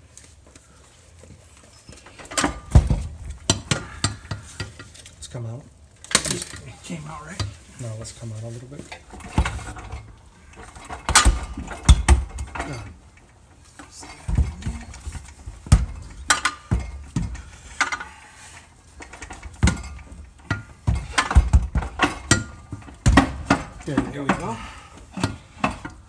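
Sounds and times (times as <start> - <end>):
transmission clanking and knocking: 1.9 - 5.0, 8.9 - 18.2, 18.9 - 26.0.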